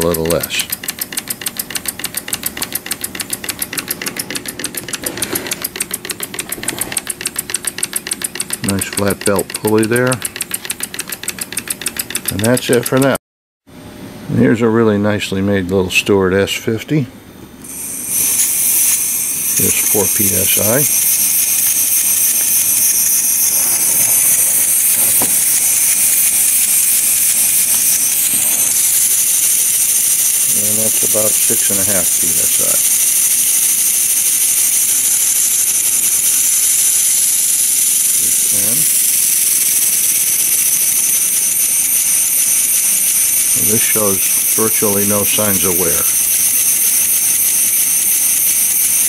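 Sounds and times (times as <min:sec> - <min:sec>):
model steam engine exhaust clicks: 0:00.0 - 0:13.2, 0:24.2 - 0:49.0.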